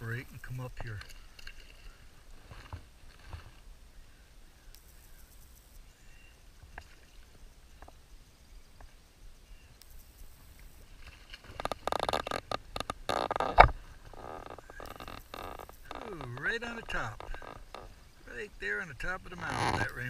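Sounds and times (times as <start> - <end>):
faint clicks: 4.7 - 5.8, 9.8 - 18.0.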